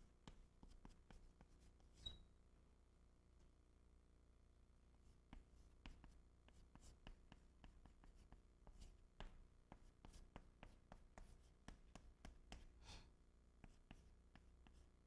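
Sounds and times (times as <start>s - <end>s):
chalk tapping and scratching: 0.2s - 2.2s, 5.3s - 12.8s, 13.6s - 15.0s.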